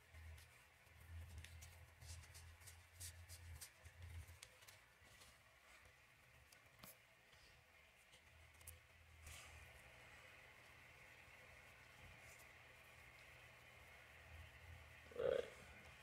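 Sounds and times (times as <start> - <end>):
faint low hum: 0.0 - 16.0
rubbing and light clicks: 0.1 - 10.0.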